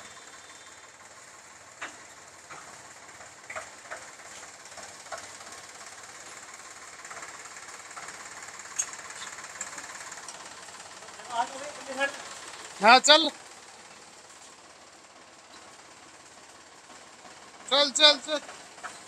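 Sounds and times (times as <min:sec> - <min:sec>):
engine running: 0:00.0 - 0:19.0.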